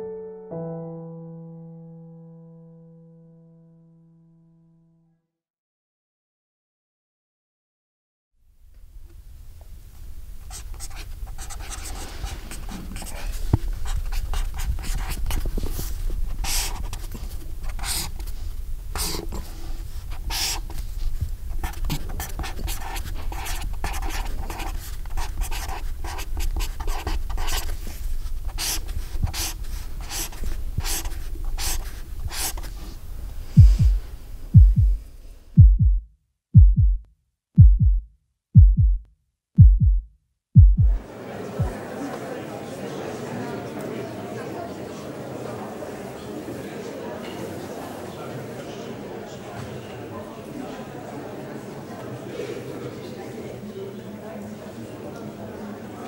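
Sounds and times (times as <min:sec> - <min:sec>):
marker squeaking on paper: 0:10.5 - 0:15.5, 0:16.3 - 0:18.3, 0:19.0 - 0:19.5, 0:20.1 - 0:20.8, 0:21.5 - 0:32.7
deep regular thumps: 0:33.6 - 0:35.0, 0:35.6 - 0:41.0
deep hum: 0:33.6 - 0:37.0, 0:37.6 - 0:39.0, 0:39.6 - 0:41.0.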